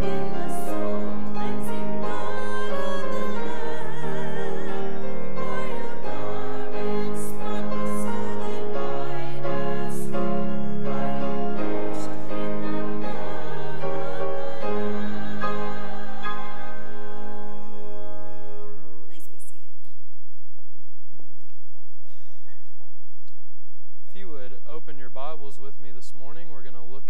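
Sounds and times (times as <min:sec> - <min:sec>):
voices singing with vibrato: 0:00.0 - 0:19.0.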